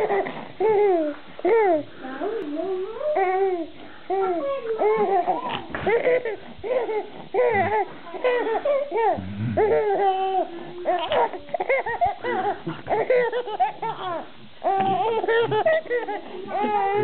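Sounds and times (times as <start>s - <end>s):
baby giggling: 4.2s - 17.0s.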